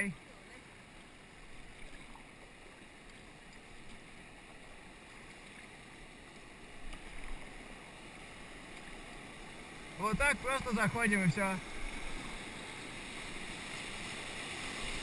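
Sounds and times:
paddle splashes: 0:00.2 - 0:15.0
river rapids rushing: 0:06.6 - 0:15.0.

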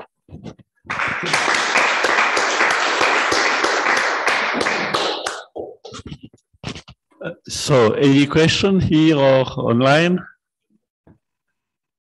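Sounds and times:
audience applauding: 0:00.9 - 0:05.6.

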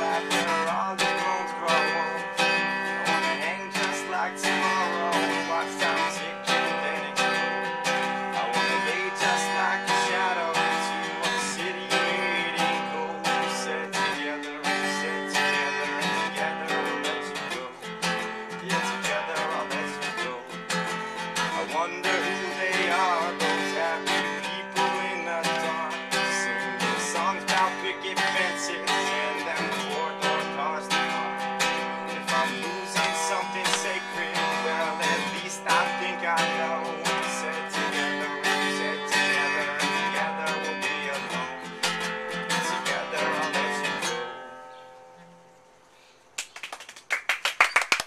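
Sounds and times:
acoustic guitar strumming: 0:00.0 - 0:46.1
hand clapping: 0:03.8 - 0:04.1, 0:27.5 - 0:27.8, 0:33.0 - 0:34.0, 0:46.4 - 0:48.0.

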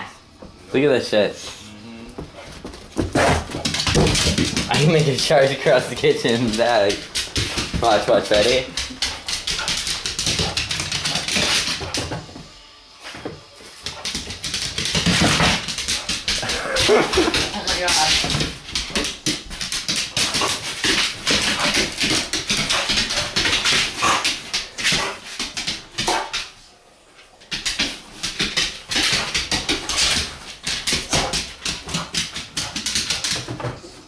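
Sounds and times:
dog claws scrabbling on floor: 0:02.7 - 0:05.3, 0:05.9 - 0:12.2, 0:27.4 - 0:33.8.

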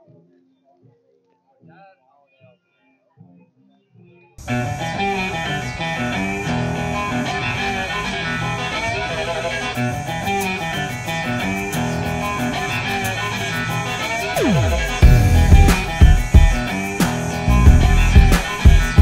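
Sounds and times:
guitar-led music: 0:00.0 - 0:19.0
ticking beat: 0:04.4 - 0:19.0.

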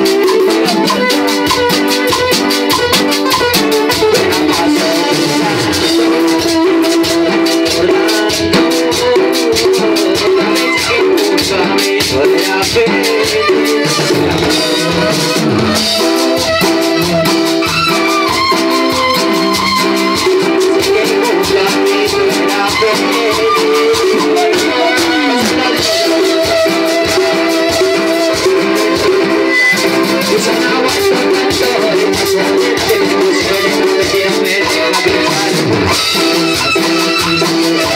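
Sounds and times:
loud live music: 0:00.0 - 0:37.9.

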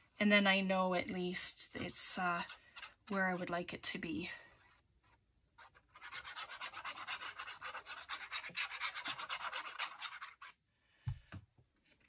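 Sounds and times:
rubbing strokes on paper: 0:05.6 - 0:10.5.

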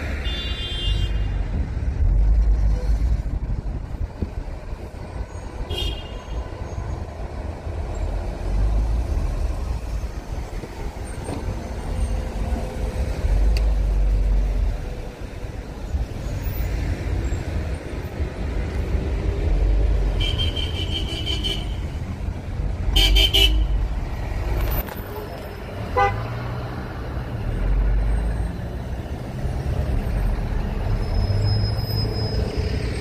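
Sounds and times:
traffic rumble: 0:00.0 - 0:33.0.

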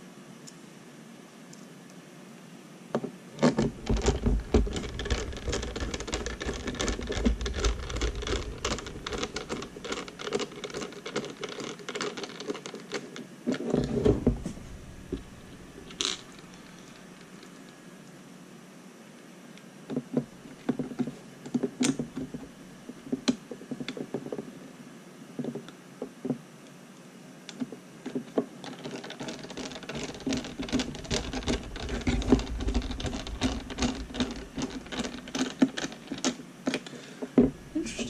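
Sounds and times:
small rapid clicks and scraping: 0:03.4 - 0:18.2, 0:19.6 - 0:24.5, 0:27.5 - 0:37.7
low rumble: 0:03.7 - 0:10.0, 0:14.0 - 0:16.7, 0:30.4 - 0:35.3.

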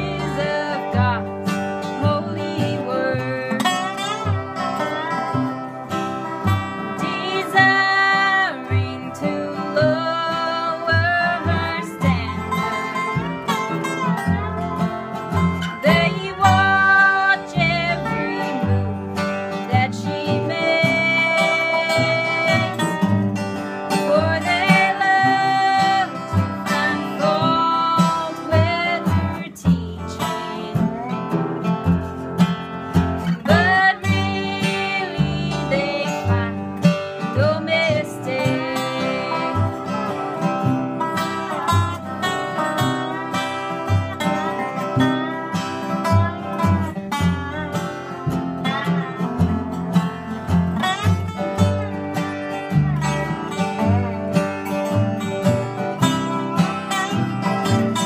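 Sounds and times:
woman singing: 0:00.0 - 0:05.6, 0:06.4 - 0:31.9, 0:33.2 - 0:47.1
bluegrass band playing: 0:00.0 - 0:58.0
dobro sliding notes: 0:00.0 - 0:58.0.

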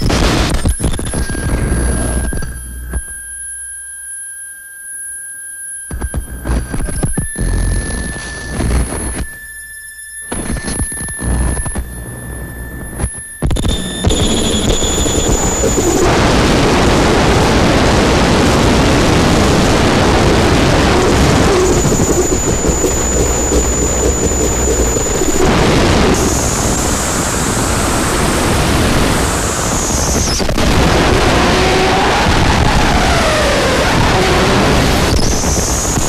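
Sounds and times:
harsh distorted noise music: 0:00.0 - 0:02.4, 0:13.4 - 0:36.0
steady high whine: 0:00.0 - 0:36.0
high falling whistle: 0:13.6 - 0:17.2, 0:20.3 - 0:36.0.

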